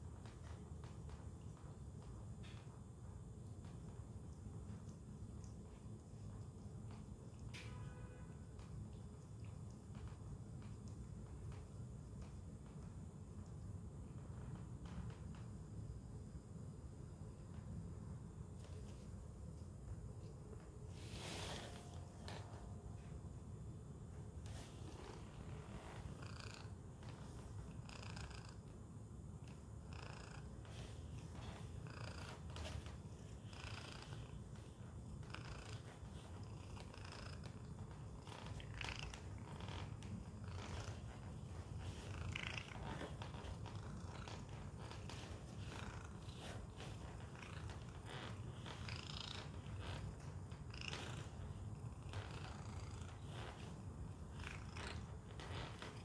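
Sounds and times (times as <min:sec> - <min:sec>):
cat purring: 0:17.2 - 0:56.0.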